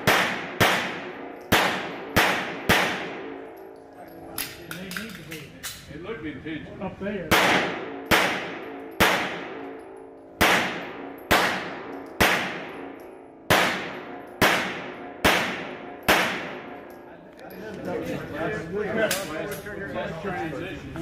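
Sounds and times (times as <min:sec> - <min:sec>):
pistol shots echoing indoors: 0:00.0 - 0:03.7, 0:07.3 - 0:17.0.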